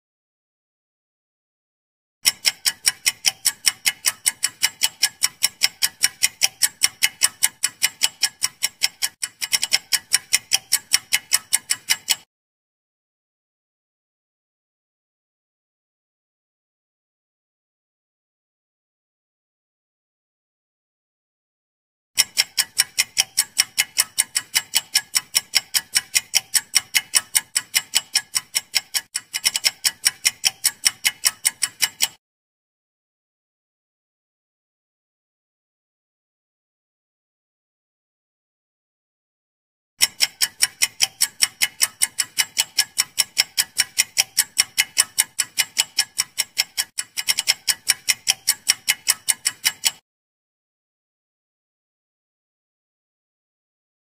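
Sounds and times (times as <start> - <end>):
clock ticking: 2.2 - 12.3, 22.2 - 32.2, 40.0 - 50.0.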